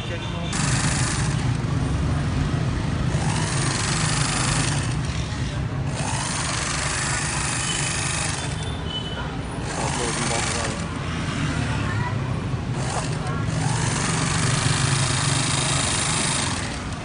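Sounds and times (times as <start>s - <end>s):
overlock sewing machine running: 0.5s - 1.6s, 3.1s - 8.6s, 9.6s - 10.9s, 12.8s - 17.0s.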